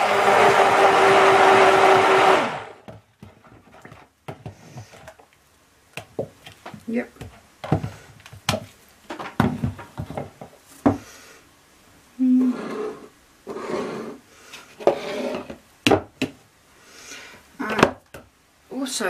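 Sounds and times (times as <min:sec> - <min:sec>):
blender shaft scraping plastic jug: 0:12.4 - 0:15.6.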